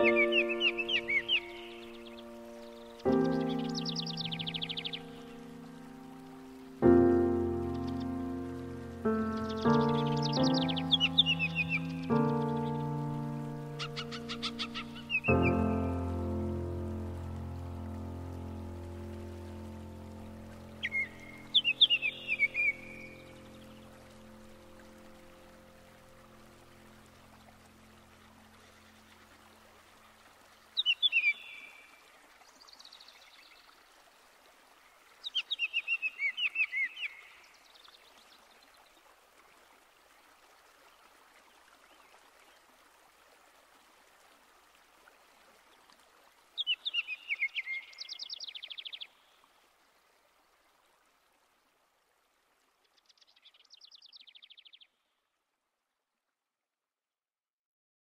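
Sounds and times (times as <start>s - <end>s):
songbird singing trills: 0.0s - 5.2s, 9.1s - 13.0s, 13.7s - 16.0s, 20.8s - 23.8s, 30.8s - 31.8s, 35.2s - 37.7s, 46.6s - 49.3s
faint steady hiss: 0.0s - 56.3s.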